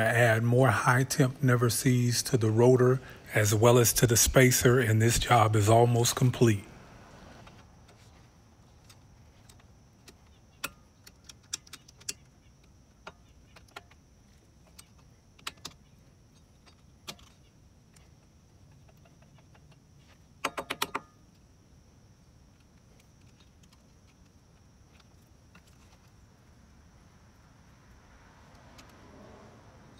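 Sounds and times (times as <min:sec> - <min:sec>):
metallic clicks and taps: 0:08.8 - 0:14.0.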